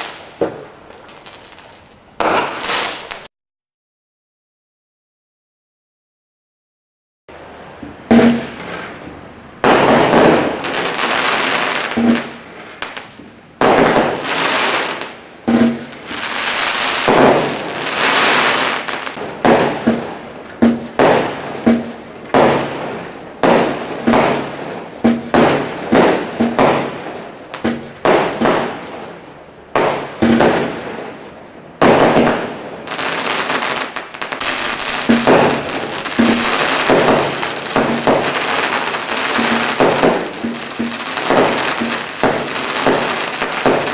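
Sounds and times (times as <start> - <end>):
firework bangs with hissing crackle: 0.0 - 3.3, 8.0 - 43.9.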